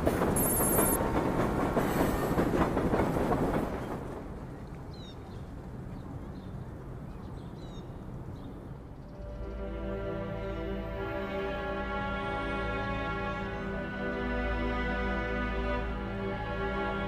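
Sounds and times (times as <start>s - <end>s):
train rumbling and rattling: 0.0s - 7.1s
bird chirps: 0.4s - 1.0s.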